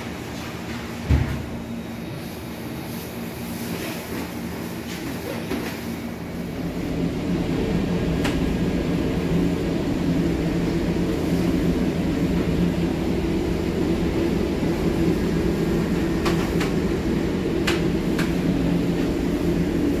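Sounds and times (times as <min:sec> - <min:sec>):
machinery hum and whir: 0:00.0 - 0:20.0.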